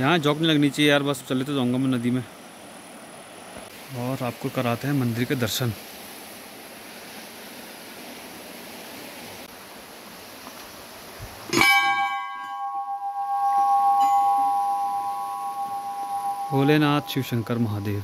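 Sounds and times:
stream flowing: 0.0s - 18.0s
brass bell ringing: 11.5s - 18.0s.

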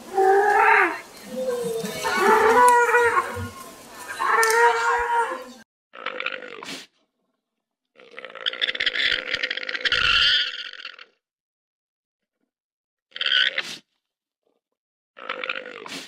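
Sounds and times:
pitched wavering animal calls: 0.0s - 5.6s, 8.5s - 10.7s.

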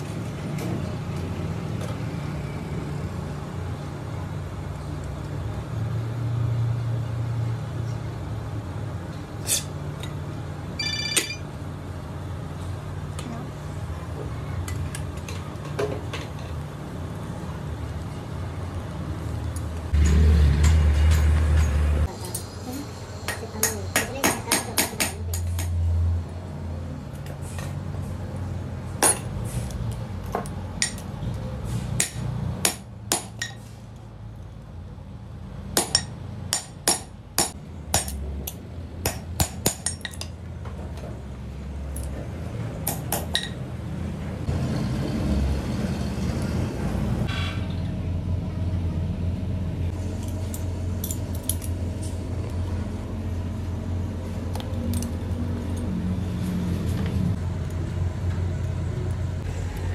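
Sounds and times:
hammer tapping metal: 23.3s - 25.8s, 35.8s - 40.3s.

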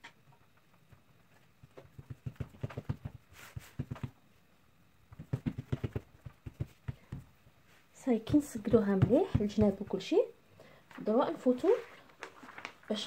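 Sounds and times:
hands patting dough: 0.7s - 4.2s, 5.1s - 7.4s, 8.2s - 10.0s.

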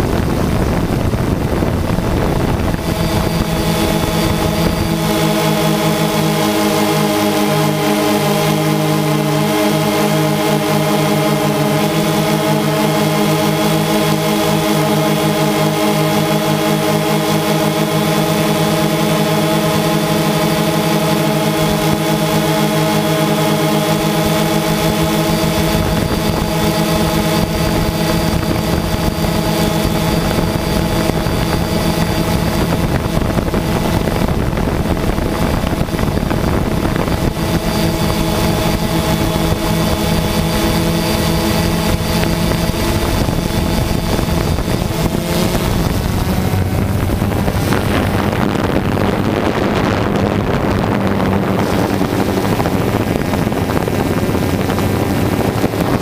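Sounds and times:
drone propellers whirring: 0.0s - 56.0s.

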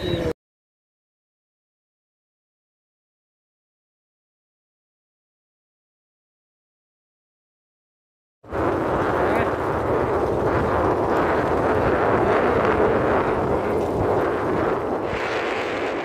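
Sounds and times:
vehicle rumbling over dirt road: 8.5s - 16.0s
wind buffeting microphone: 8.5s - 16.0s.

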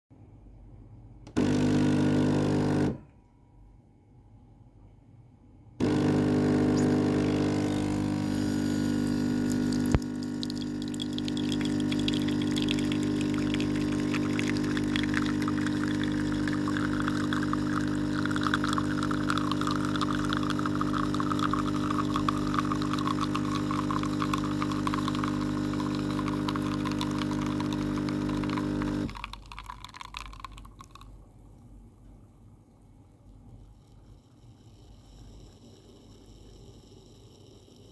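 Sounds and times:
espresso machine pump buzzing: 1.3s - 3.0s, 5.8s - 31.0s
coffee hissing and spraying: 5.8s - 31.0s.

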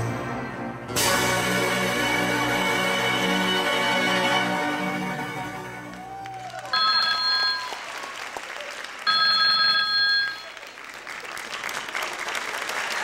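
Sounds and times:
audience applause: 5.8s - 13.0s
electronic phone ringtone: 6.8s - 7.8s, 9.1s - 10.6s.

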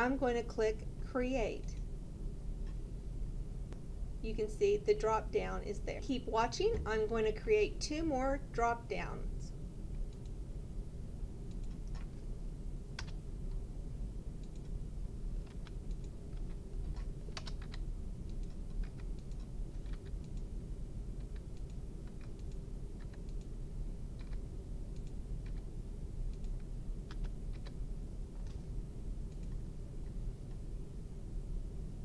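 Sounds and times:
low background hum: 0.0s - 32.0s
keyboard typing clicks: 13.0s - 13.2s, 14.4s - 14.8s, 15.4s - 20.5s, 21.2s - 23.5s, 24.2s - 25.7s, 26.3s - 27.8s, 28.4s - 28.6s, 29.3s - 29.6s.

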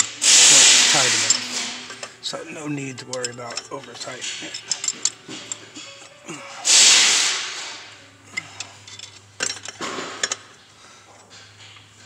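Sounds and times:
wrench metallic clicks: 3.0s - 5.6s.

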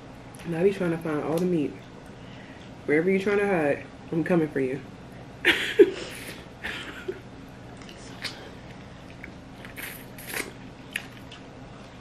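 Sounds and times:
chewing and mouth sounds: 7.7s - 12.0s.

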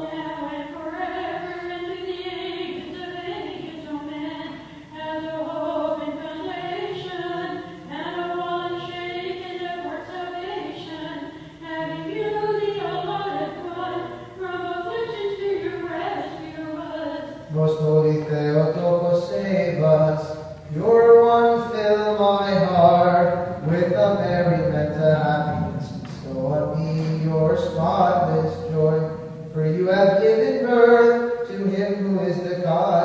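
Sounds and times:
voices chanting a hymn: 4.5s - 33.0s
low voice holding drone note: 22.4s - 26.1s.

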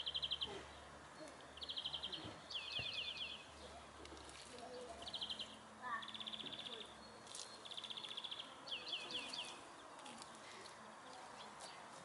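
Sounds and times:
songbird trilling and chirping: 0.0s - 3.8s, 4.6s - 10.4s
faint outdoor background noise: 0.0s - 12.0s.

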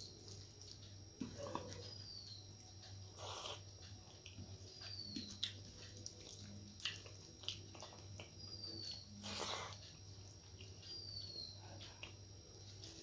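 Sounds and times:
wet chewing sounds: 0.0s - 2.0s, 3.1s - 11.0s.

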